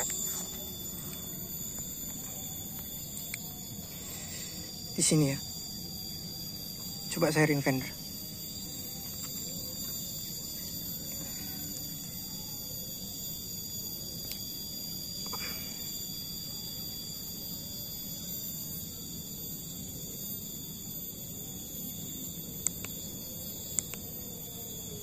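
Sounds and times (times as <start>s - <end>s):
insects chorus: 0.0s - 25.0s
sharp clicks: 23.8s - 24.1s.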